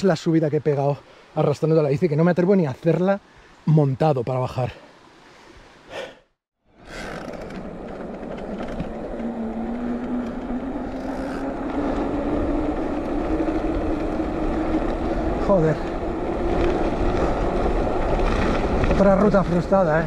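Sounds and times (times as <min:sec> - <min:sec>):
wind and tyre rumble: 0:06.6 - 0:20.0
faint motor whine rising: 0:07.0 - 0:15.4.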